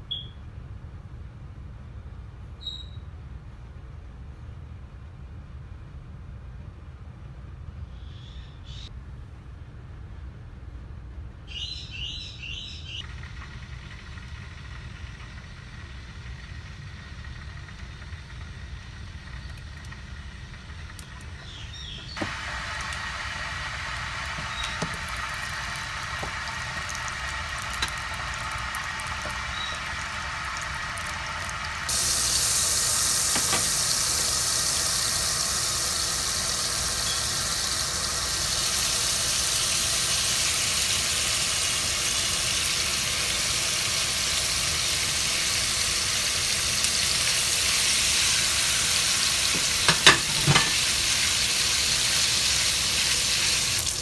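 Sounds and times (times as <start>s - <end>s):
meat sizzling in hot oil: 22.2s - 54.0s.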